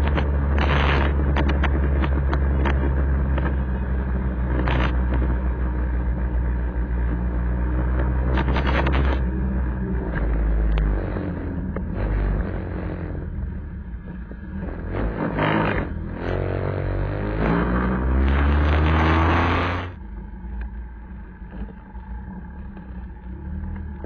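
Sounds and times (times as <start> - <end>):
wind noise on microphone: 0.0 - 5.4, 7.9 - 9.3
scooter engine accelerating: 8.0 - 20.0.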